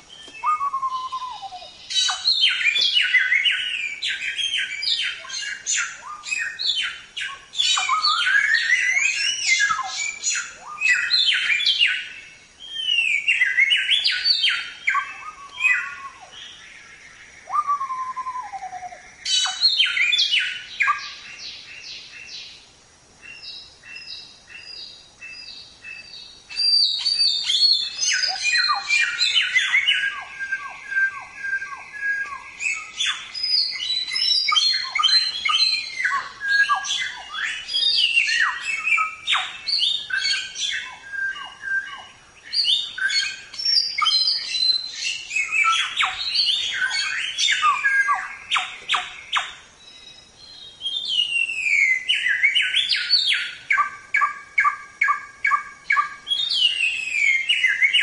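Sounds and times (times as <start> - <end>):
bird singing chirps and trills: 0.0 - 58.0.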